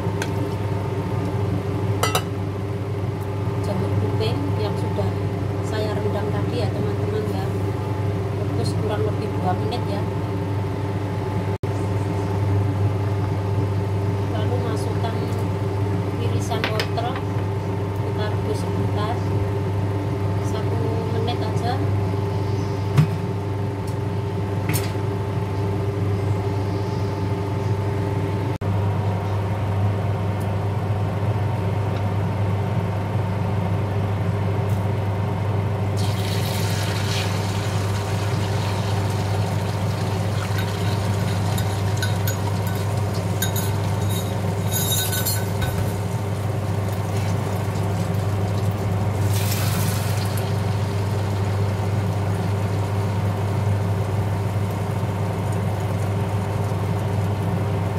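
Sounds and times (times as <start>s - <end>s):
appliance hum: 0.0s - 57.9s
eggs sizzling in hot oil: 36.0s - 44.7s, 45.8s - 57.4s.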